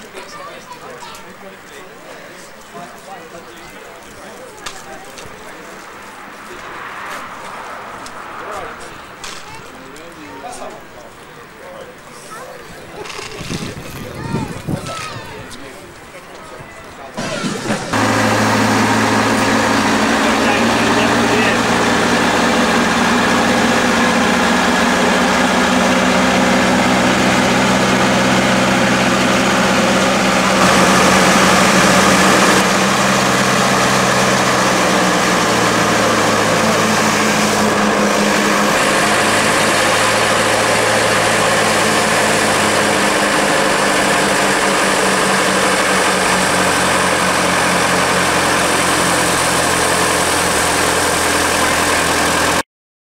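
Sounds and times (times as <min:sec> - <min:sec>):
crane engine running: 0:17.0 - 0:52.6.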